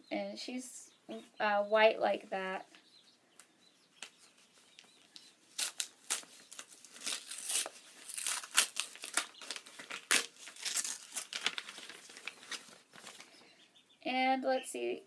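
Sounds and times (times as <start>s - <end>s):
paper tearing and crinkling: 5.5s - 13.3s.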